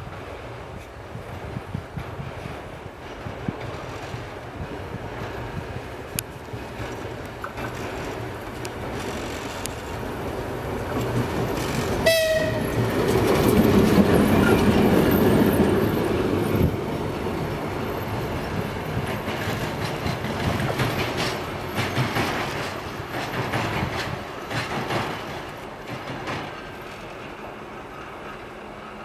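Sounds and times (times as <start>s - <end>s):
diesel locomotive engine: 0.0s - 29.0s
wheels clicking over rail joints: 1.7s - 16.8s, 17.8s - 29.0s
locomotive horn toot: 12.0s - 12.8s.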